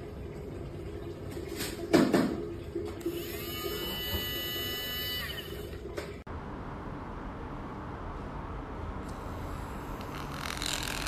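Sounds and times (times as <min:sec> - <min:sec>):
milk frother motor buzzing: 0:03.0 - 0:05.7, 0:09.2 - 0:11.0.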